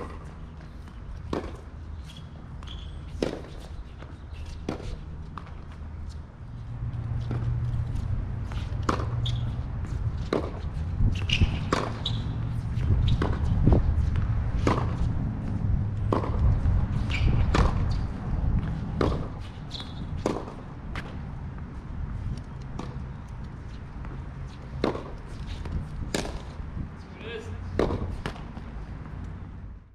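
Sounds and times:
tennis ball bouncing: 0.0 - 26.6, 27.7 - 29.3
tennis racket hitting ball: 3.2 - 3.6, 7.2 - 21.2, 24.0 - 26.6, 27.7 - 28.7.

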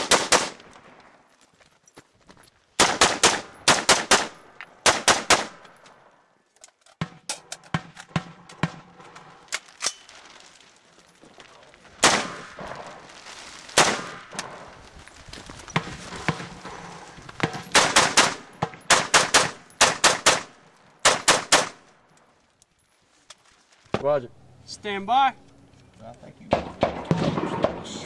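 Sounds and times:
rifle shots: 0.0 - 1.0, 2.8 - 5.6, 12.0 - 13.0, 13.8 - 14.7, 17.4 - 21.8, 26.5 - 28.0
gunshot echo: 12.0 - 13.0, 13.8 - 14.7, 26.5 - 28.0.

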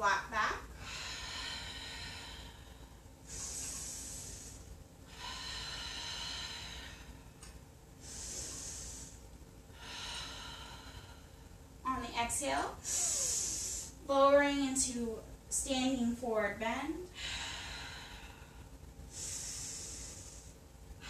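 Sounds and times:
woman breathing deeply: 0.7 - 11.8, 12.8 - 14.1, 17.1 - 21.0.

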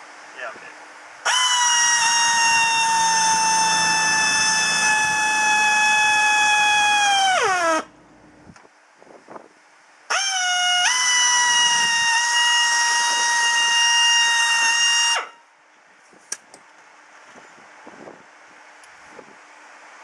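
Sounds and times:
power drill motor whining: 1.3 - 7.8.

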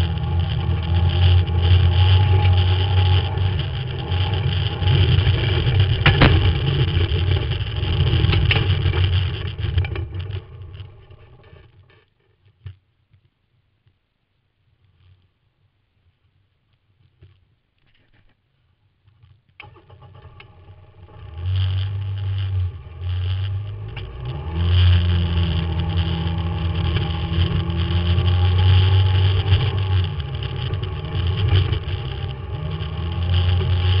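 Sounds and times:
utility vehicle engine driving: 0.0 - 11.9, 19.6 - 34.0.

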